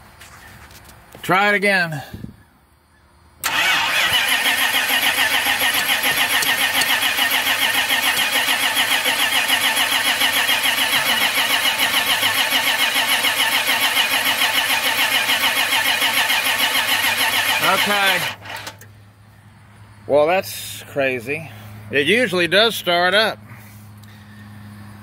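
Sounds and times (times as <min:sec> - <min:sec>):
truck engine cranking on starter: 0:03.4 - 0:19.0.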